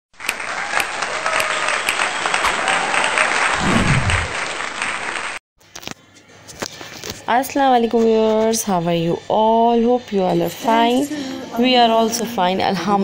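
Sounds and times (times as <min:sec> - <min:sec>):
applause: 0:00.2 - 0:05.4.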